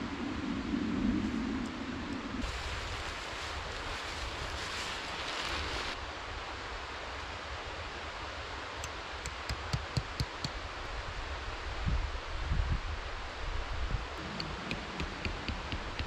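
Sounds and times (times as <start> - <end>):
canvas rustling dragged over snow: 2.4 - 6.0.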